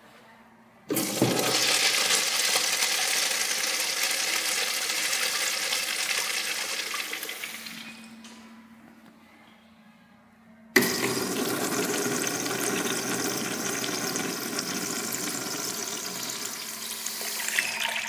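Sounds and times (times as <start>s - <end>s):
urinal flushing water rush: 0.9s - 7.8s, 10.8s - 18.0s.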